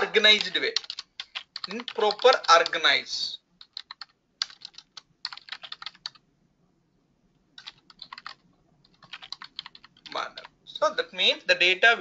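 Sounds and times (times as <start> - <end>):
typing on computer keyboard: 0.3 - 2.8, 3.6 - 6.2, 7.6 - 10.5.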